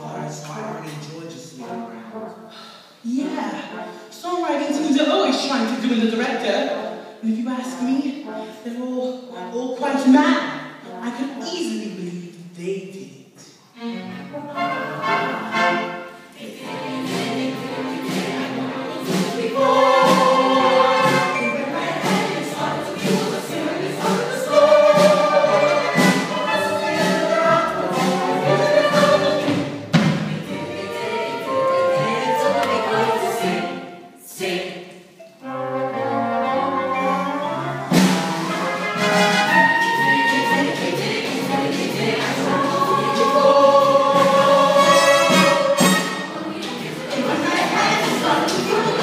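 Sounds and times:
instrumental accompaniment: 0:13.6 - 0:49.0
cast singing as a choir: 0:14.3 - 0:34.9, 0:39.5 - 0:49.0.

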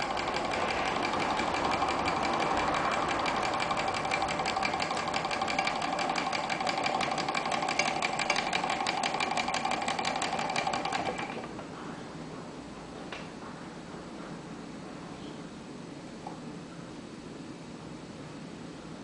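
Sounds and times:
small engine clattering: 0:00.0 - 0:11.5.

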